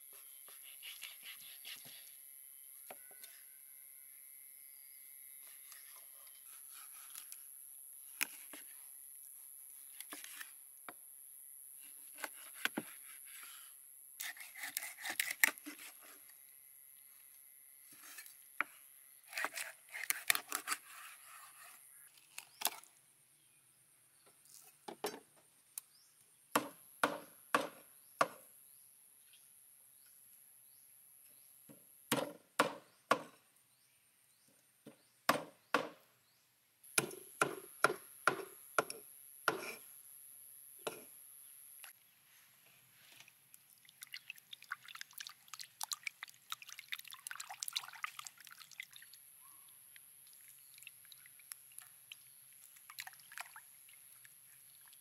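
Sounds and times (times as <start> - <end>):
knife scraping through fish skin: 0.5 - 2.2, 12.0 - 16.2, 19.3 - 21.8.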